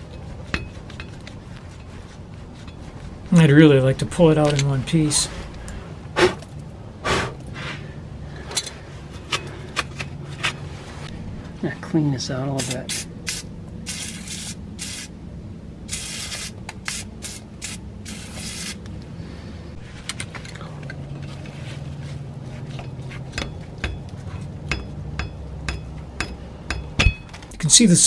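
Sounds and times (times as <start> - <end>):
scraping and clicking on metal: 0.0 - 3.2
low hum: 0.0 - 27.9.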